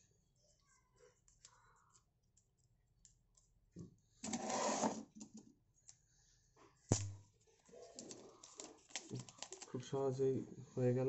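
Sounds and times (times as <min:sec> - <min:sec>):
plastic film crinkling: 0:06.9 - 0:10.0.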